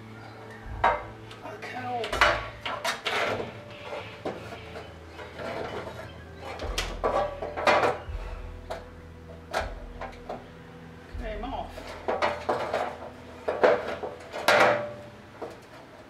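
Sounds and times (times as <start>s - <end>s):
sheet metal scraping and rustling: 0.0s - 16.0s
sharp metal knocks: 0.6s - 1.4s, 5.6s - 8.9s.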